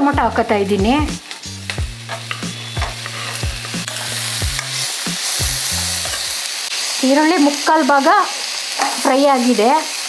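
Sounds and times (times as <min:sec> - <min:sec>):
vegetables sizzling in hot oil: 0:00.0 - 0:10.0
metal spatula scraping pan: 0:01.3 - 0:06.3.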